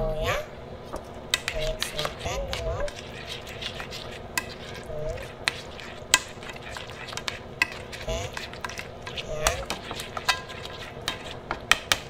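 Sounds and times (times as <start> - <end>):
squishing and stirring paste: 0.9 - 12.0.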